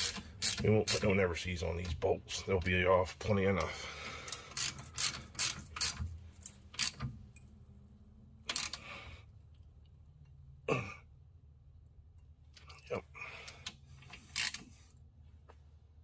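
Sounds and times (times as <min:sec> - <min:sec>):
hand ratchet clicking: 0:00.0 - 0:01.2, 0:03.6 - 0:07.5, 0:08.4 - 0:08.9, 0:13.5 - 0:14.8.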